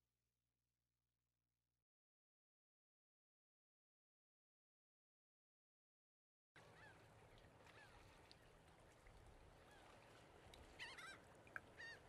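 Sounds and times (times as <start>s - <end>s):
distant bird calls: 10.7s - 12.0s.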